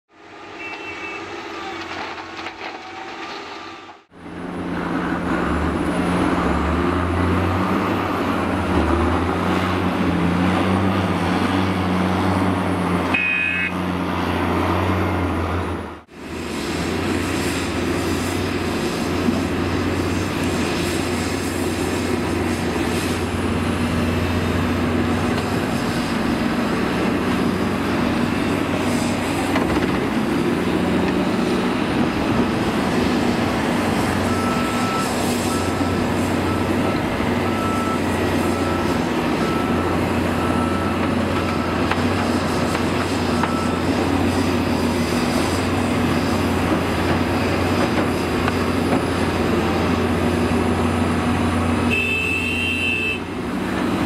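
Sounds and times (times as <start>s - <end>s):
heavy diesel engines running: 0.1s - 54.0s
high-pitched beep: 13.2s - 13.7s.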